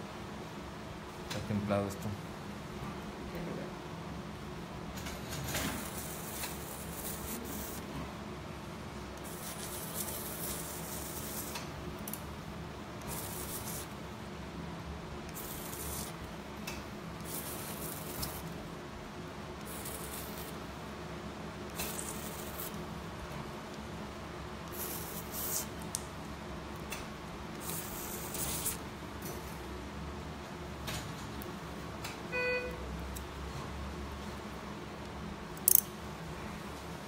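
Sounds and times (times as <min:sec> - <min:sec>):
equipment hum: 0:00.0 - 0:37.0
short hissing bursts: 0:24.7 - 0:25.7.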